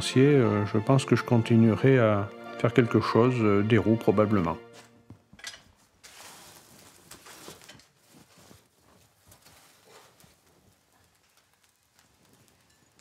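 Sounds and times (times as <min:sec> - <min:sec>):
tongs clinking on iron: 0:05.3 - 0:05.7
forge fire rushing and crackling: 0:06.1 - 0:13.0.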